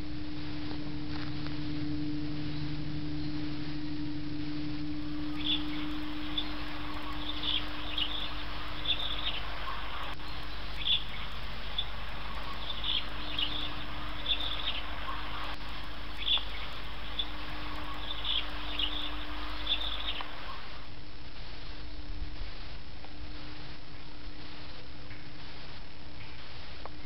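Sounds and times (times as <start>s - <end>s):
low hum: 0.0s - 27.0s
steady hiss: 0.0s - 27.0s
high bird chirps: 5.0s - 20.8s.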